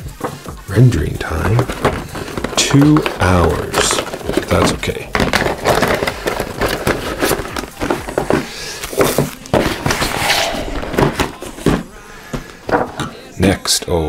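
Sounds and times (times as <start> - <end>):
plastic packaging crinkling: 1.2 - 10.1
boxes set down on wooden table: 1.5 - 10.1, 10.9 - 13.1.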